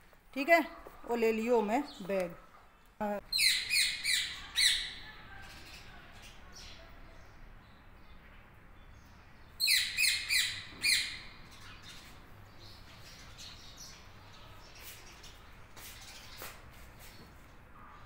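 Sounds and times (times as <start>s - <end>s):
parakeets screeching: 3.3s - 5.0s, 9.6s - 11.4s.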